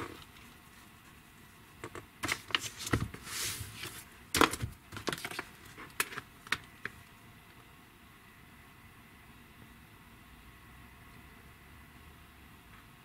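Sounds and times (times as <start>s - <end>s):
pages rustling: 1.8s - 7.0s.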